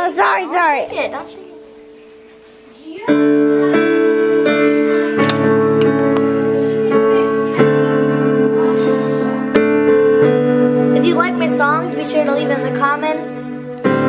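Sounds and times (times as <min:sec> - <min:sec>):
piano slow held chords: 0:00.0 - 0:14.0.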